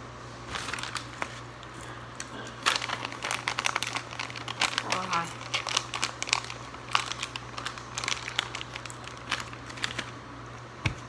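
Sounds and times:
plastic candy wrapper crinkling: 0.5 - 10.6.

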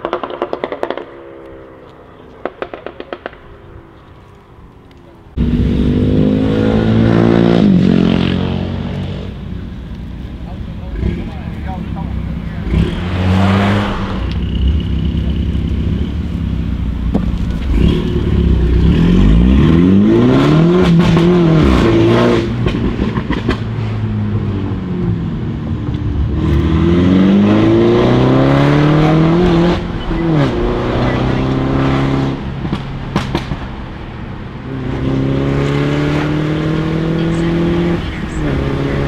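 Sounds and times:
exhaust cracks: 0.0 - 5.6, 28.9 - 39.0
car engine accelerating: 0.0 - 39.0.

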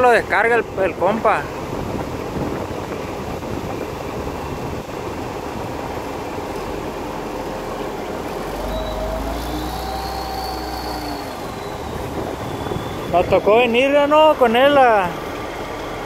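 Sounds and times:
truck diesel engine rumbling: 0.0 - 16.0
faint whining tones: 7.7 - 15.4.

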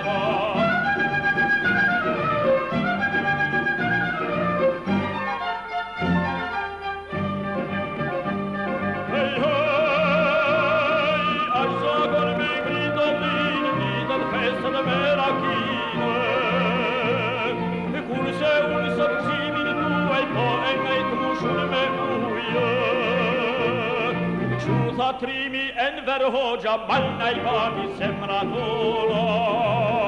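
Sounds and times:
man singing with vibrato: 0.0 - 2.4, 9.0 - 30.0
orchestra playing: 0.0 - 25.1.

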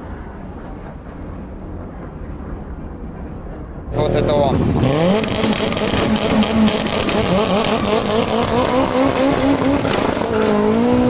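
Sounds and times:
car engine accelerating through gears: 3.9 - 11.0.

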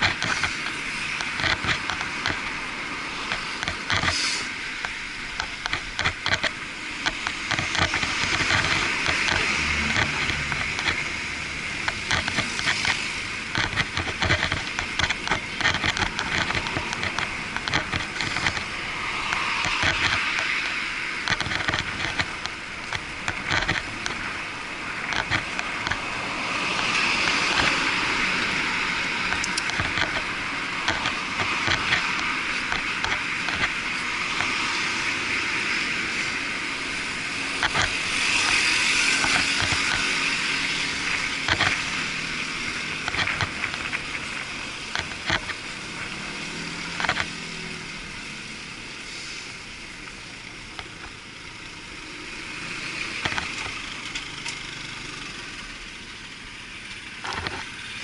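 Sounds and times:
small knocks and rattles: 0.0 - 2.6, 11.8 - 24.4, 29.3 - 34.8, 37.6 - 45.6
muffled road traffic: 0.0 - 58.0
vehicles passing: 0.0 - 58.0.

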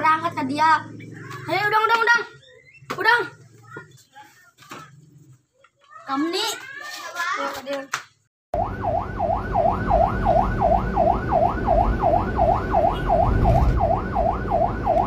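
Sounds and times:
siren yelping: 8.6 - 15.0.

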